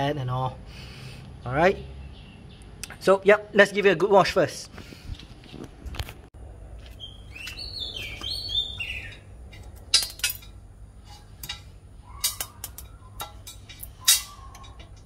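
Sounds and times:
bird chirping: 1.4 - 3.1, 6.9 - 9.4, 11.9 - 15.0.

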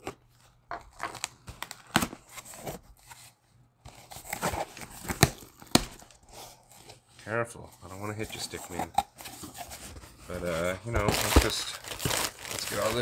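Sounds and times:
packing tape tearing: 0.8 - 2.6, 3.9 - 6.9, 11.0 - 13.0
tape and cardboard snapping: 4.4 - 6.2.

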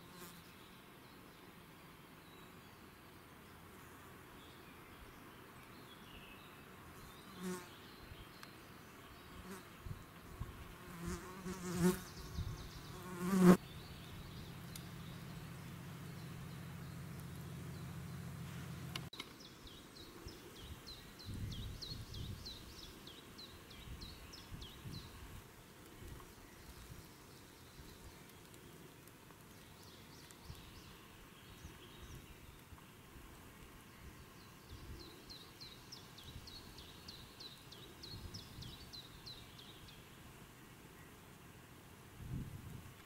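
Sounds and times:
insect buzzing: 9.2 - 17.8.

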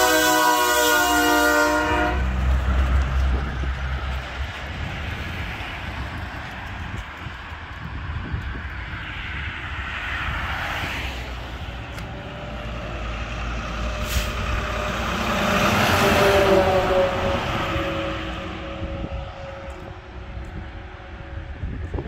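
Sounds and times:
semi truck driving past: 0.0 - 22.0
car passing: 0.7 - 21.8.

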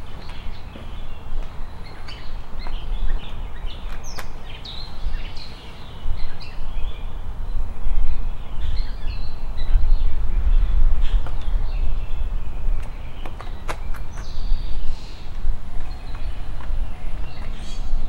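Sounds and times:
songbirds chirping: 0.0 - 18.0
low rumble: 9.2 - 13.2.

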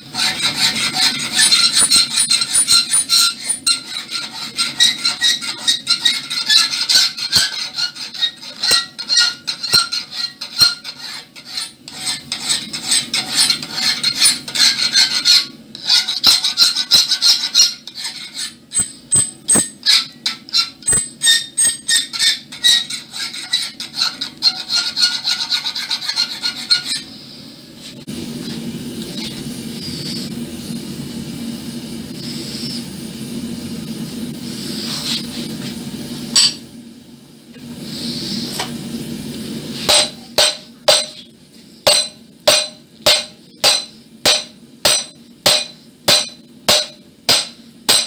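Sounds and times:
file rasping on iron: 0.0 - 27.1, 41.9 - 48.0.

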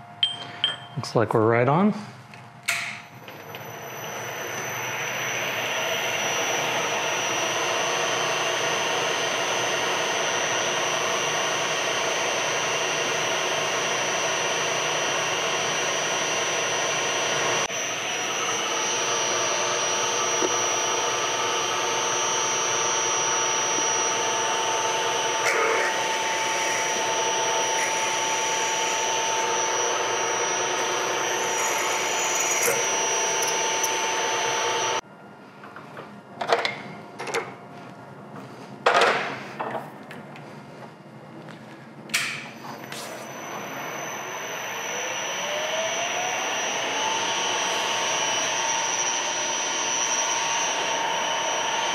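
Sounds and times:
milling machine whining: 3.2 - 35.0, 42.5 - 51.9.

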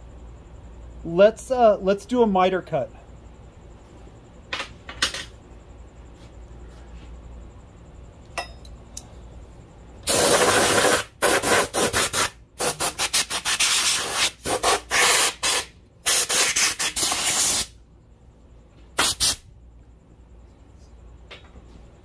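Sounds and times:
compressed air blow gun hissing: 10.0 - 17.7, 19.0 - 19.4.

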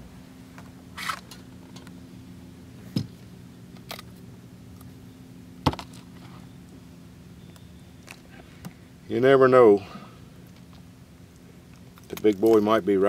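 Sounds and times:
steady low hum: 0.0 - 13.0
clicks and rustles: 10.4 - 12.8.

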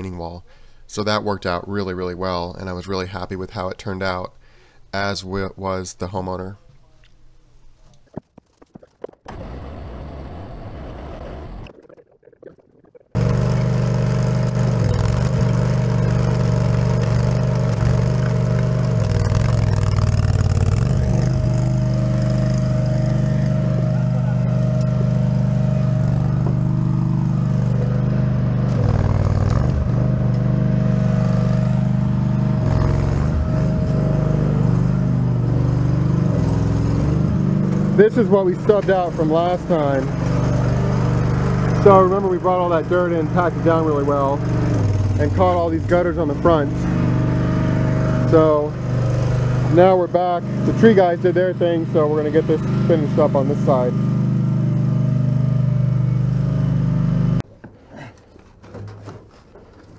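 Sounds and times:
trencher engine running under load: 13.2 - 57.4.

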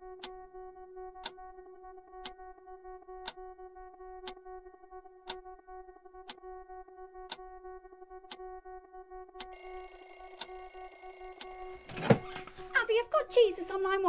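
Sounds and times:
alarm clock ticking: 9.4 - 12.6.

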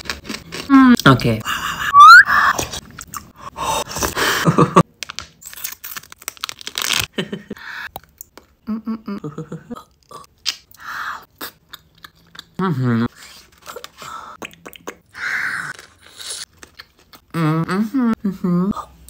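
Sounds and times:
wet mouth clicks and smacks: 14.4 - 15.0
chewing and crunching: 15.7 - 17.3.

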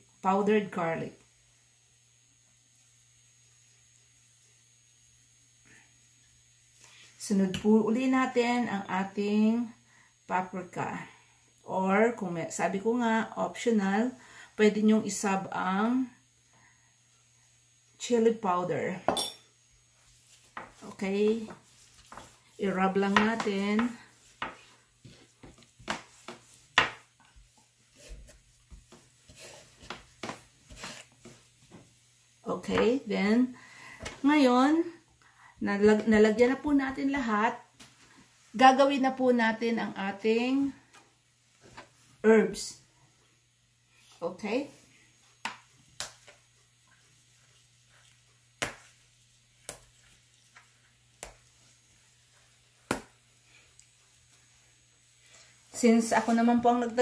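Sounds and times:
hand rubbing spices into meat: 19.8 - 33.1, 46.2 - 53.4.

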